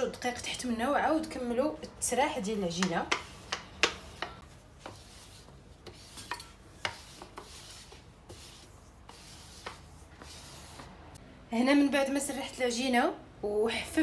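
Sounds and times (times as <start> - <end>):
rolling pin rubbing on dough: 2.7 - 11.0.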